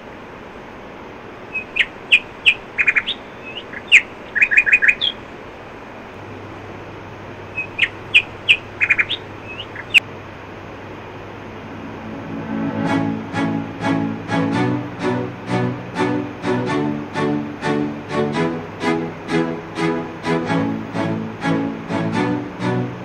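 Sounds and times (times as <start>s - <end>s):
birds chirping: 1.5s - 5.3s, 7.4s - 10.0s.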